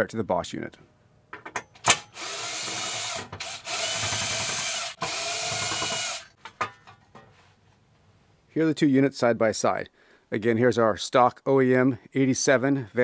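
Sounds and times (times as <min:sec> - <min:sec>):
drill clicks: 0:01.8 - 0:06.4
drill motor whirring: 0:02.0 - 0:06.3.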